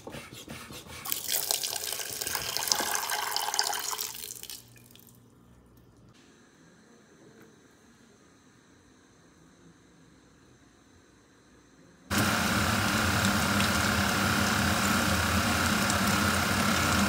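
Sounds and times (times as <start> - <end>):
tap running water into pot: 1.1 - 4.6, 12.1 - 17.0.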